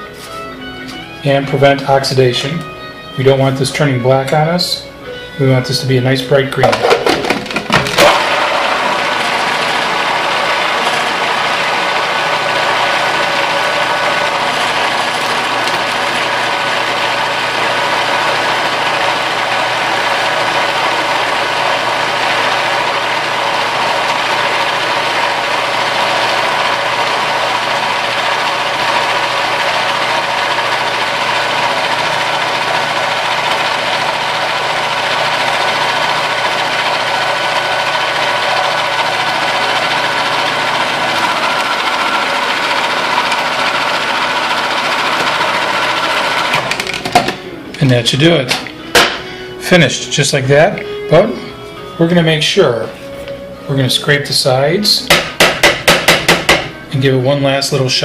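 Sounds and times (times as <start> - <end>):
food processor motor blending: 6.6 - 47.8, 55.1 - 56.8.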